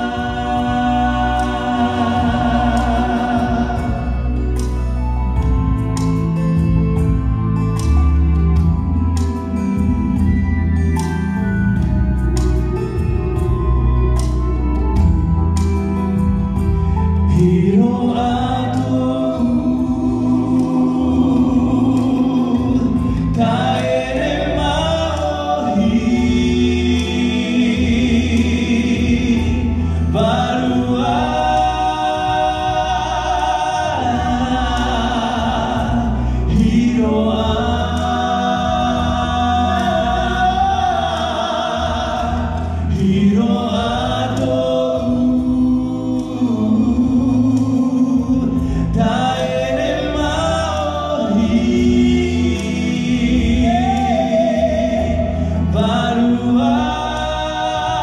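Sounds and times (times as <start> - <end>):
people singing through pa: 0.0 - 8.0, 16.0 - 58.0.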